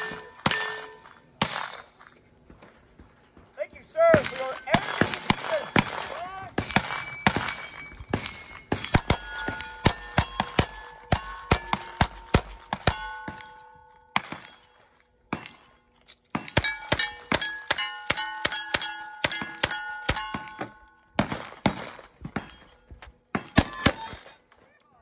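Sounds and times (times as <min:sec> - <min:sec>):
steel targets ringing: 0:00.0 - 0:02.4, 0:03.9 - 0:21.2, 0:23.4 - 0:24.5
rifle shots: 0:04.1 - 0:13.6, 0:14.2 - 0:14.7, 0:21.2 - 0:22.7.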